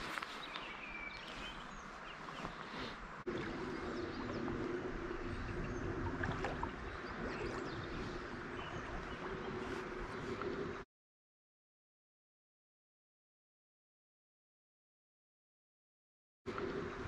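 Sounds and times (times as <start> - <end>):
small birds chirping: 0.0 - 6.0, 6.6 - 10.8.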